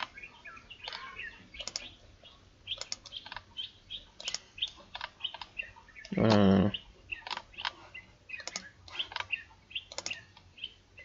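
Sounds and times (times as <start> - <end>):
small birds chirping: 0.0 - 11.0
computer mouse clicks: 0.8 - 1.9, 2.7 - 3.5, 4.2 - 6.4, 8.4 - 9.3, 9.9 - 10.5.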